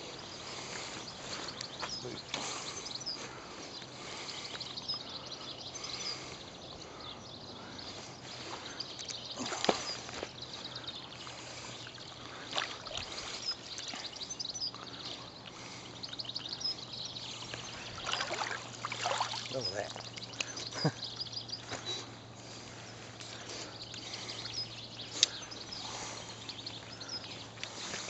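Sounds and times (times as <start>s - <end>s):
water lapping and trickling: 0.0s - 28.0s
water splashes: 12.4s - 14.0s, 18.0s - 20.3s.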